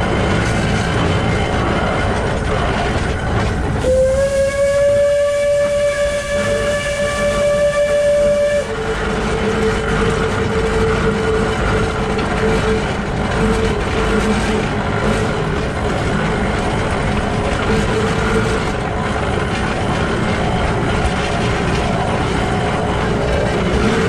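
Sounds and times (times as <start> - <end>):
steam locomotive running: 0.0 - 24.0
steam whistle blast: 3.8 - 9.1.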